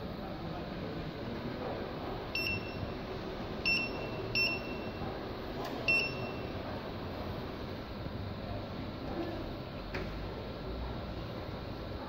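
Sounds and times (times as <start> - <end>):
steady background hum: 0.0 - 12.0
keypad beeps: 2.4 - 3.0, 3.6 - 5.0, 5.8 - 6.6.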